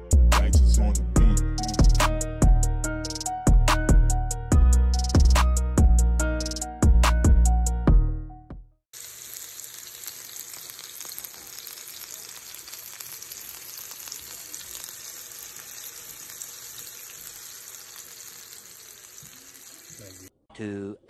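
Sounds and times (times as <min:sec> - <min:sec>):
burger patties sizzling on grill: 0:09.0 - 0:20.3.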